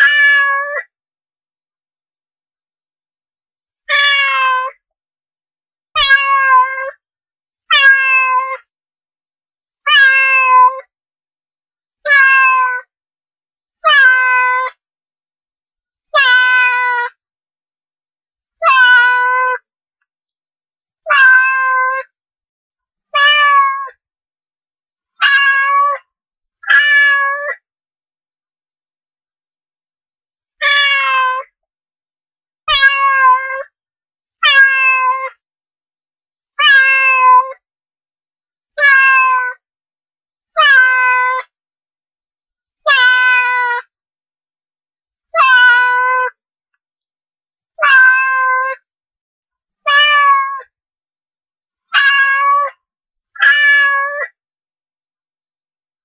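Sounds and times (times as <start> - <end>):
cat meowing: 0.0 - 0.8, 3.9 - 4.8, 6.0 - 7.0, 7.7 - 8.6, 9.9 - 10.9, 12.0 - 12.9, 13.8 - 14.8, 16.2 - 17.1, 18.6 - 19.6, 21.1 - 22.1, 23.2 - 24.0, 25.2 - 26.0, 26.7 - 27.6, 30.6 - 31.5, 32.7 - 33.7, 34.4 - 35.4, 36.6 - 37.6, 38.8 - 39.6, 40.6 - 41.5, 42.9 - 43.8, 45.3 - 46.4, 47.8 - 48.8, 49.9 - 50.7, 51.9 - 52.8, 53.4 - 54.4.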